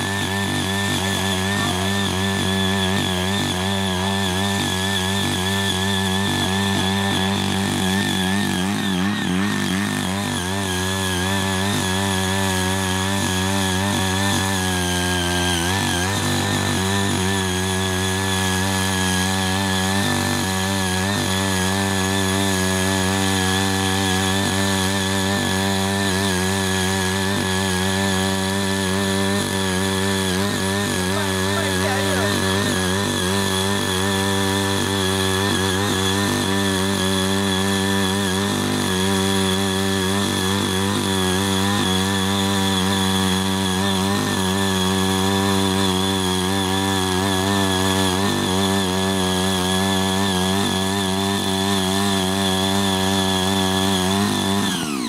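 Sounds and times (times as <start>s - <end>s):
rotary tiller engine running: 0.0s - 55.0s
tiller blades digging soil: 0.0s - 55.0s.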